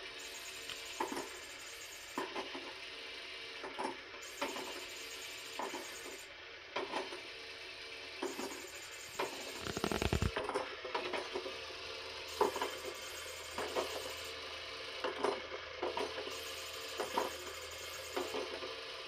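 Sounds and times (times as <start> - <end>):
toy motor whirring: 0.0 - 2.8, 4.2 - 7.3, 8.2 - 10.4, 12.2 - 14.4, 15.9 - 19.0.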